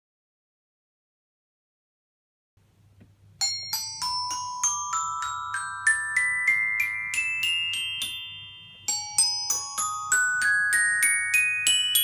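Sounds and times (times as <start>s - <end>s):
xylophone ascending run: 3.4s - 12.0s.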